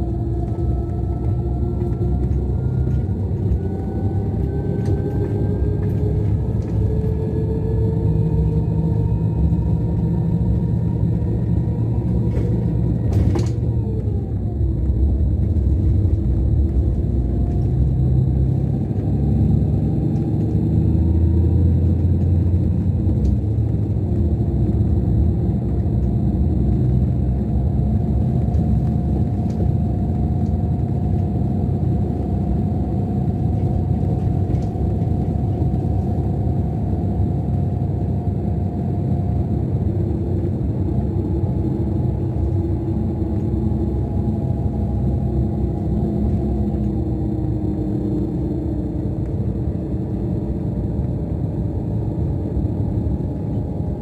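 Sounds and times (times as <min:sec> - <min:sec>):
diesel engine droning: 0:00.0 - 0:54.0
faint steady whine: 0:00.0 - 0:54.0.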